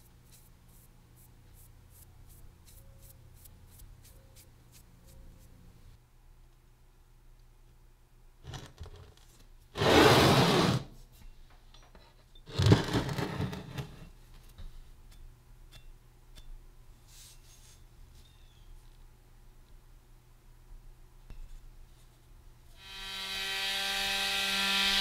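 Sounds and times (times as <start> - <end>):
metal part scraping on wooden bench: 11.8 - 14.2
rustle: 16.9 - 19.1.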